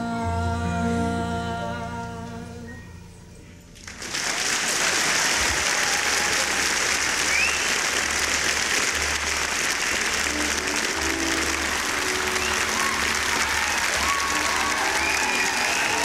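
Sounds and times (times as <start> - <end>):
audience applauding: 3.8 - 16.0.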